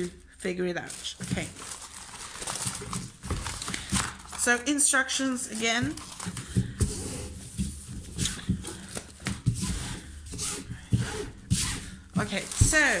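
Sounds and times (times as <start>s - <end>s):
stiff sheet rustling and crinkling: 0.7s - 4.7s, 12.2s - 13.0s.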